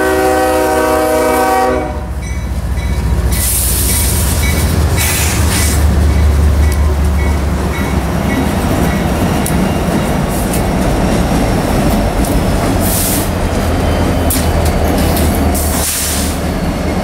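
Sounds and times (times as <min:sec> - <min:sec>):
diesel locomotive engine drone: 0:00.0 - 0:17.0
steel wheels rumbling on rails: 0:00.0 - 0:17.0
brief hiss: 0:15.7 - 0:16.4.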